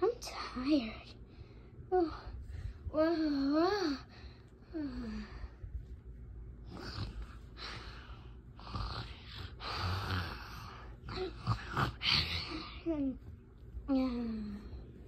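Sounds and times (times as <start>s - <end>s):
child breathing noisily: 6.7s - 13.2s.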